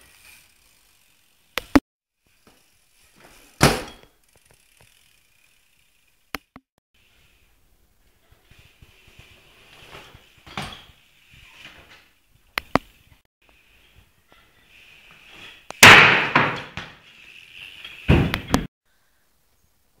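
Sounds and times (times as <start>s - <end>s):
bike tyres on concrete: 0.0s - 19.2s
loud bike impacts: 2.4s - 4.9s, 14.3s - 18.7s.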